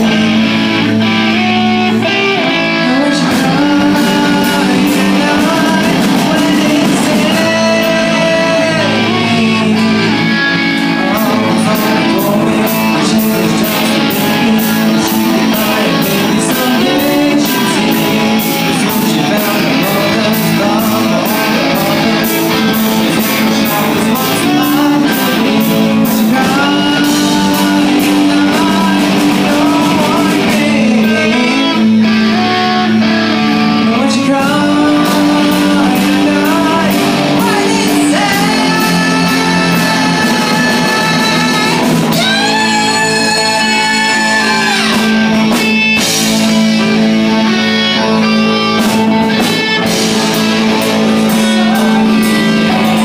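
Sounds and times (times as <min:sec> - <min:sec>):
lead vocals: 0:00.0 - 0:53.0
live rock band playing: 0:00.0 - 0:53.0.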